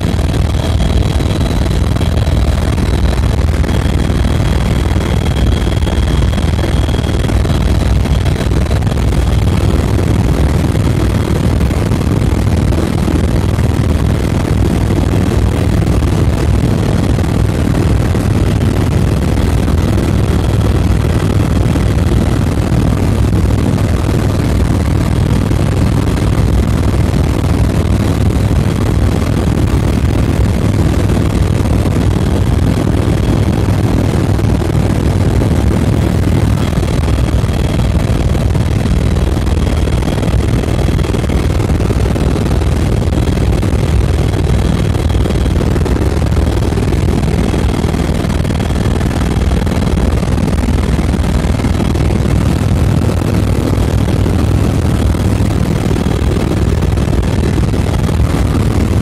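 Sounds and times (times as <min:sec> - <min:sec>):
faint high whine: 0:00.0 - 0:10.9
helicopter engine and rotor drone: 0:00.0 - 0:59.0.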